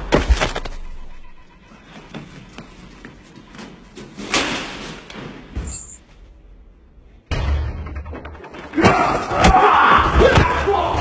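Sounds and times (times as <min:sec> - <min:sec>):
footsteps on metal staircase: 0:01.7 - 0:06.0
loud slam: 0:07.3 - 0:11.0.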